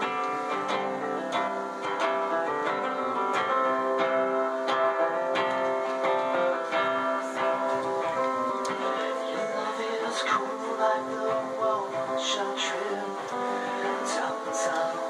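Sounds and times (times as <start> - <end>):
guitar strumming: 0.0 - 15.0.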